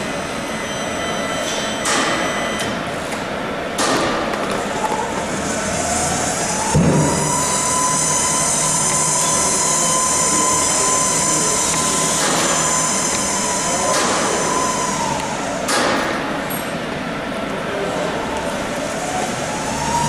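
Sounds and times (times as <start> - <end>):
electric tug whine: 4.8 - 15.7.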